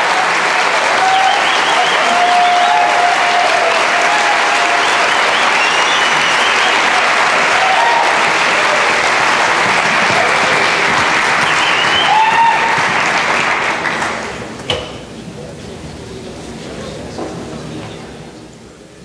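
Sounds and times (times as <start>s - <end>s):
shouted cheers: 0.0s - 14.1s
audience applauding: 0.0s - 14.5s.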